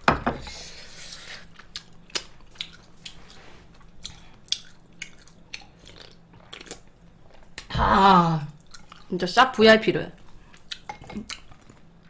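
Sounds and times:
chewing mouth sounds: 1.1 - 7.7, 8.6 - 9.1, 10.2 - 11.9.

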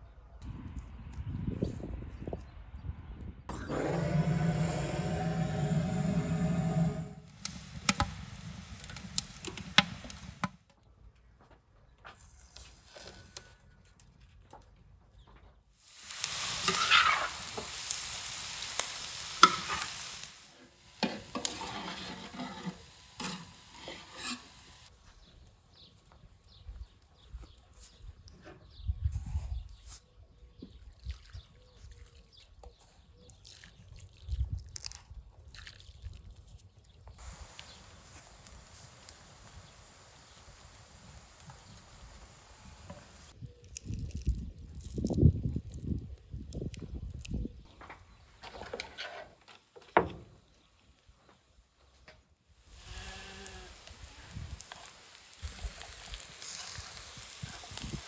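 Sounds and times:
low rumble of flames: 3.0 - 10.6, 37.2 - 43.4, 52.6 - 58.0
salt pattering into pan: 3.9 - 10.6, 15.8 - 24.9, 37.2 - 43.4, 52.6 - 58.0
firewood crackling and popping: 3.9 - 10.7, 15.8 - 24.9, 37.1 - 44.8, 52.6 - 58.0.

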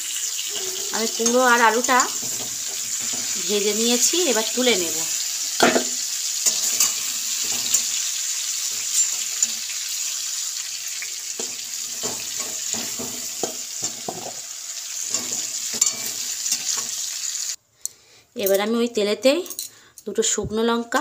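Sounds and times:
oil sizzling in a pan: 0.0 - 17.6
metal utensils scraping a pan: 0.1 - 10.4, 11.1 - 17.5.

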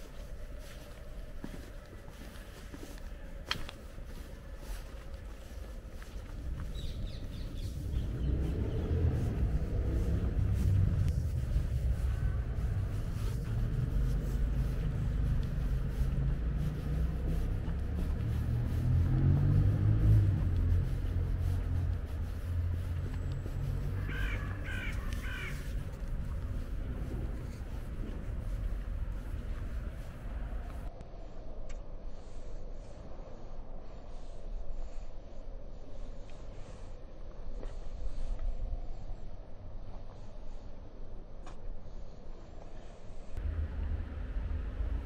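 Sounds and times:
distant city traffic rumble: 0.0 - 31.0, 36.0 - 45.0
wind: 0.0 - 45.0
crow cawing: 24.0 - 25.9.

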